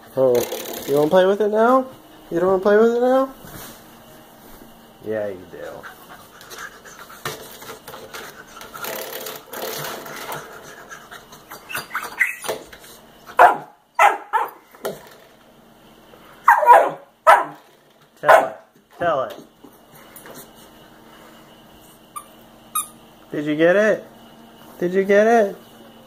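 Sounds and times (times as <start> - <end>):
puppy barking: 13.4 - 14.6, 16.4 - 17.6, 18.2 - 18.7.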